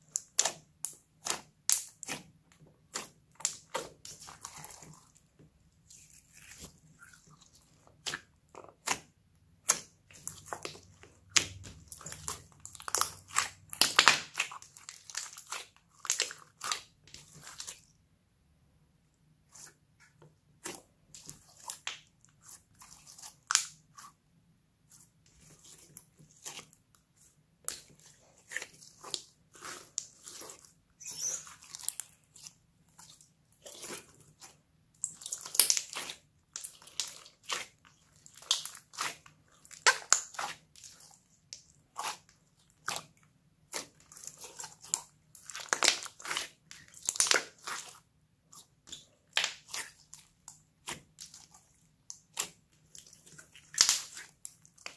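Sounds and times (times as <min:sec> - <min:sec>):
slime squishing and clicking: 0:34.4 - 0:47.9, 0:48.8 - 0:54.9.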